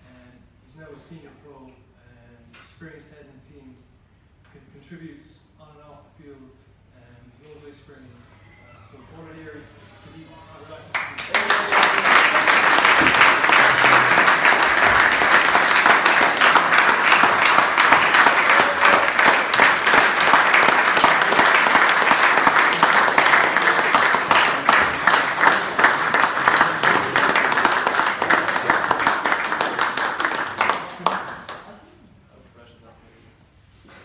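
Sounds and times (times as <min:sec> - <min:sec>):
audience applauding: 0:11.0 - 0:31.8.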